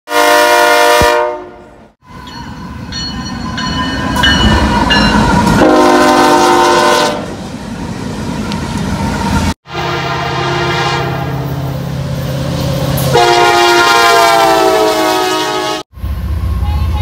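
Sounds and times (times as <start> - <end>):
locomotive horn: 0.1 - 1.9, 4.5 - 7.4, 9.6 - 11.6, 13.0 - 15.9, 16.6 - 17.0
freight train rumble: 0.1 - 17.0.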